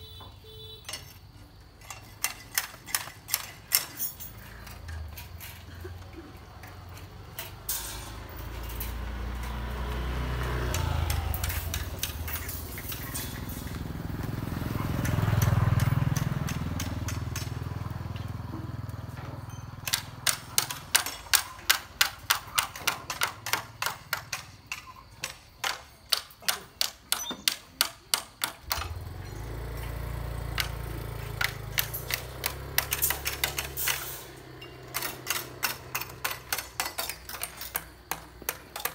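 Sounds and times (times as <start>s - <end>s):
vehicle engine humming: 2.5s - 24.4s, 28.6s - 38.9s
hand tool striking hard material: 10.7s - 13.8s, 19.8s - 28.9s, 34.9s - 38.9s.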